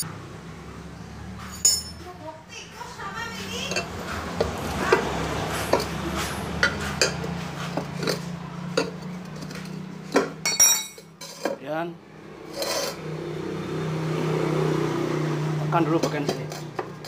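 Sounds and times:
metallic ring: 1.5 - 2.0, 10.4 - 11.3
tyre lever scraping metal rim: 12.5 - 13.0.

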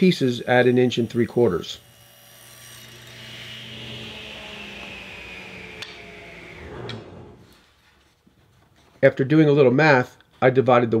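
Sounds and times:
table saw whine: 0.4 - 7.6.

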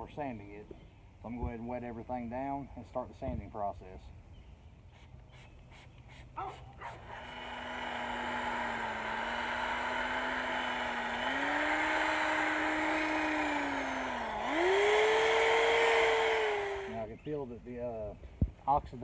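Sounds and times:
electric drill motor whine: 6.8 - 17.1.

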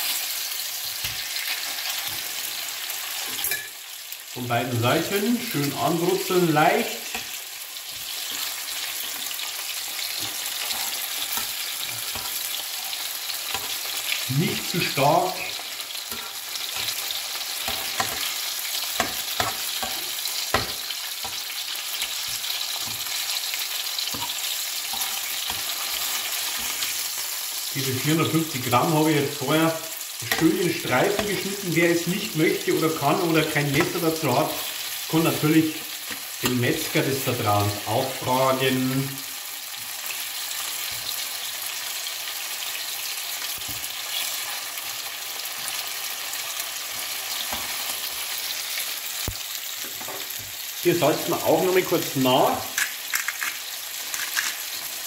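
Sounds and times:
beef sizzling in a frying pan: 0.0 - 55.0
metal utensil scraping a pan: 10.0 - 14.2, 15.5 - 27.1, 52.7 - 54.8.

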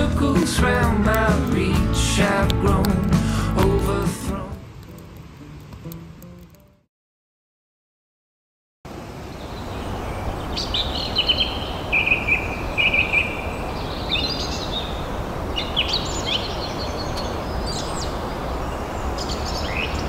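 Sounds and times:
small birds chirping: 9.2 - 20.0.

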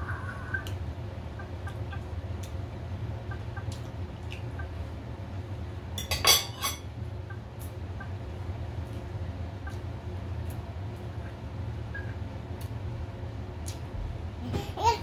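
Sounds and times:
low steady hum: 0.0 - 15.0
cutlery clinking on plates: 6.0 - 6.8.

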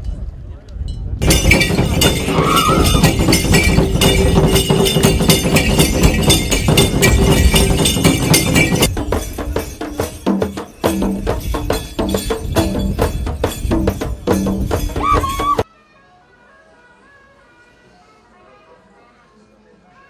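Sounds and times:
percussion dance music: 1.2 - 15.6.

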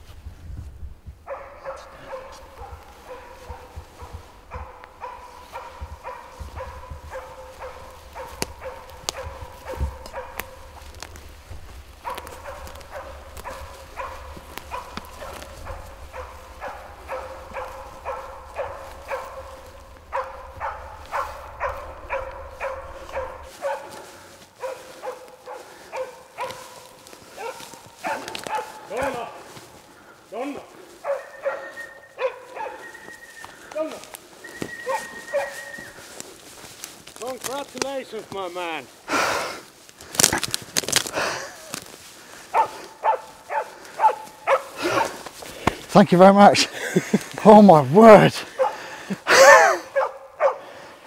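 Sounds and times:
wind rumble on microphone: 0.0 - 23.6
dog barking: 1.2 - 11.1, 11.9 - 29.6, 30.8 - 33.2, 34.8 - 35.8, 42.5 - 45.2, 48.4 - 50.7.

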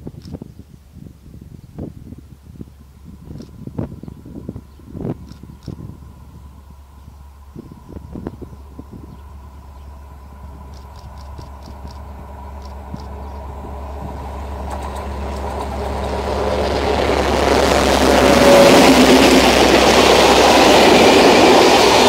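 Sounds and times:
diesel locomotive approaching: 2.2 - 22.0
train wheels on rails: 4.3 - 22.0.

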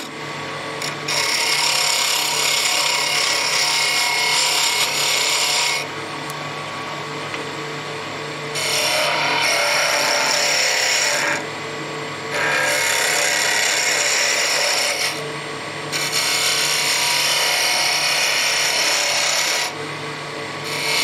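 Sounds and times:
lathe humming: 0.0 - 21.0
tool shaving wood on a lathe: 0.8 - 5.9, 8.5 - 11.5, 12.3 - 15.2, 15.9 - 19.8, 20.6 - 21.0.

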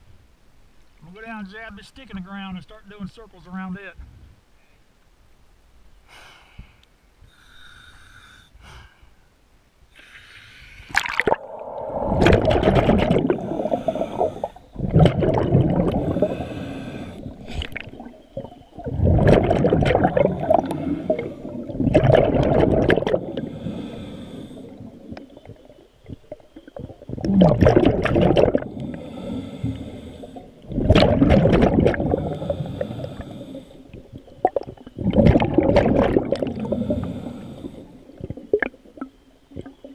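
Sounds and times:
diver breathing through regulator: 6.1 - 9.2, 9.9 - 18.5, 20.0 - 25.1, 28.5 - 30.8, 31.9 - 34.1, 36.1 - 38.4
exhaled bubbles bursting: 10.9 - 23.7, 24.6 - 29.0, 30.6 - 33.2, 33.9 - 37.1, 38.1 - 39.9.

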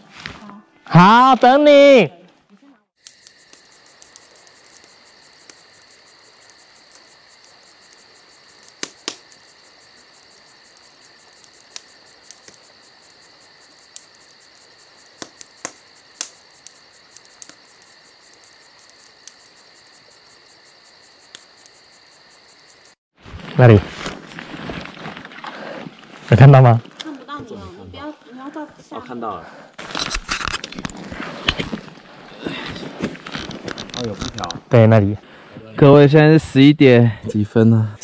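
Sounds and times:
night insects chirring: 2.9 - 38.0.

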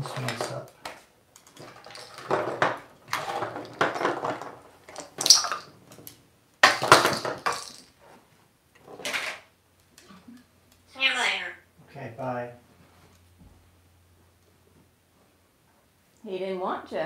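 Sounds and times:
plastic toys rattling in drawer: 1.4 - 5.7, 6.6 - 7.9.

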